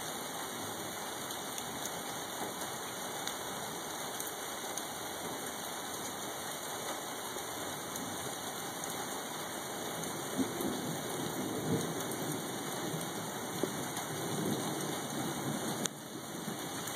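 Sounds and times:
steady rain falling: 0.0 - 16.9
distant thunder rumble: 10.1 - 16.8.

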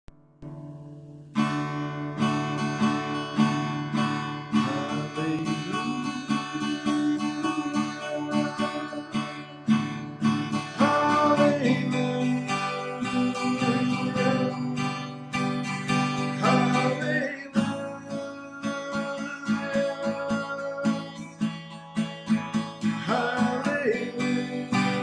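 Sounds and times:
acoustic guitar strumming: 0.1 - 25.0
wordless voice: 4.6 - 9.2, 10.7 - 15.0, 15.9 - 21.4, 23.0 - 25.0.

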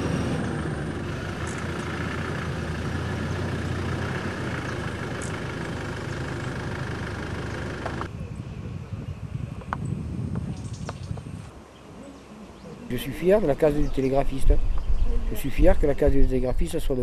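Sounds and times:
off-road vehicle engine running: 0.0 - 8.1.

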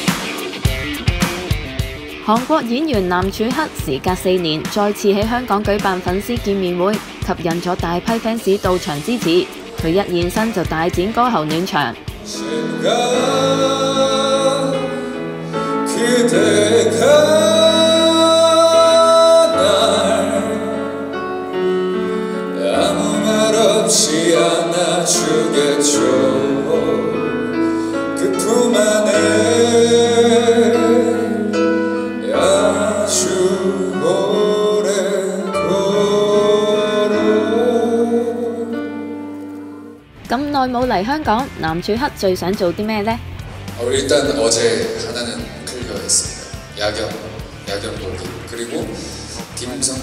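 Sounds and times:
backing track music: 0.0 - 50.0
man singing into a microphone: 12.2 - 21.1, 22.0 - 39.0.

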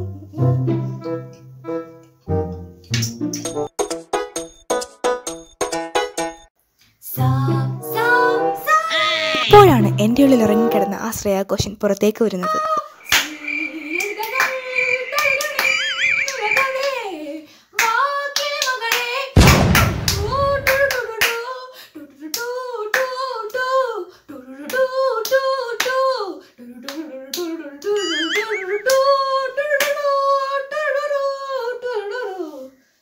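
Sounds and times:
woman singing with vibrato: 12.4 - 19.3, 20.3 - 32.7
hand claps: 13.1 - 13.4, 14.0 - 14.6, 15.2 - 17.0, 20.1 - 21.4.

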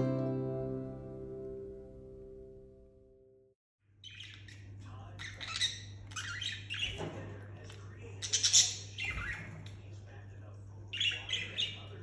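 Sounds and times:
budgerigars chirping and chattering: 4.0 - 9.7, 10.7 - 12.0.

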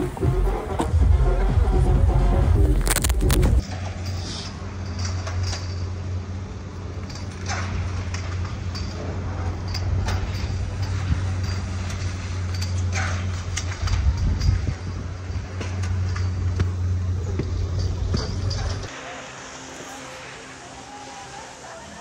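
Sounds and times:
steady low hum: 0.0 - 21.6
ski edges scraping: 2.6 - 3.6
skis sliding over snow: 2.6 - 3.6.

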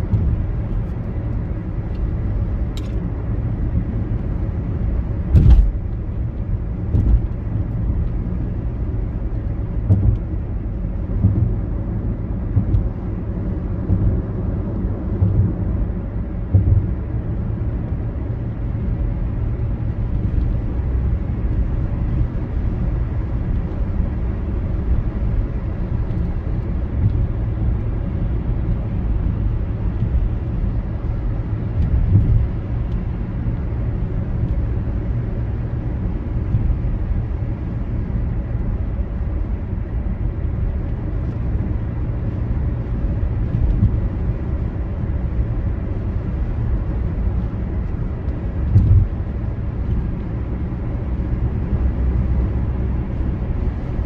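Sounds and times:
road and engine rumble: 0.0 - 54.0
car bumps: 5.2 - 5.9, 9.8 - 10.2.

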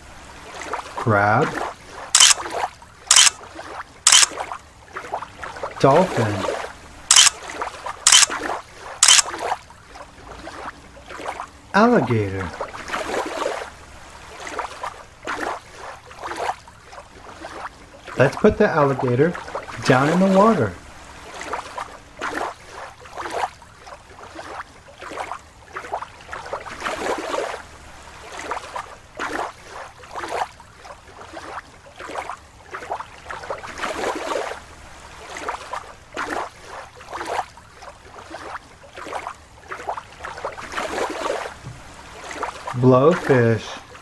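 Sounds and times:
water sloshing in a bowl: 0.4 - 44.0.

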